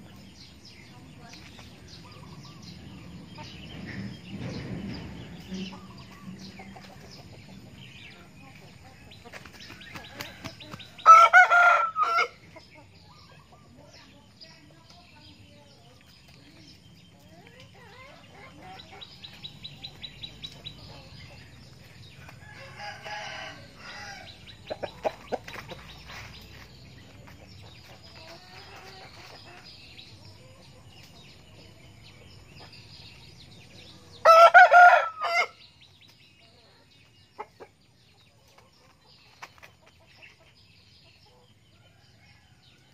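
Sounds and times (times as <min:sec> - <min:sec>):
chicken clucking: 0:05.4 - 0:42.6
rooster crowing: 0:22.4 - 0:24.3, 0:34.2 - 0:35.6.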